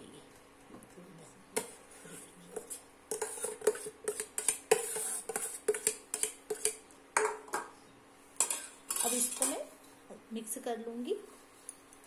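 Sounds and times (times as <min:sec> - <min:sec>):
spoon scraping metal bowl: 0:01.6 - 0:06.8, 0:08.4 - 0:09.6.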